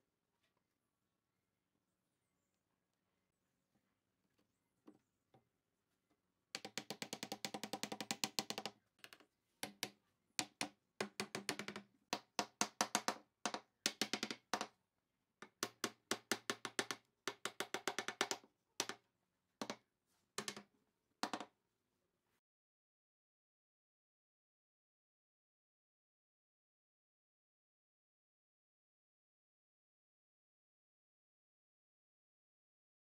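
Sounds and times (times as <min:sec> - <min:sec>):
wooden mallet tapping wood: 0:06.6 - 0:14.7, 0:15.4 - 0:19.0, 0:20.4 - 0:21.5.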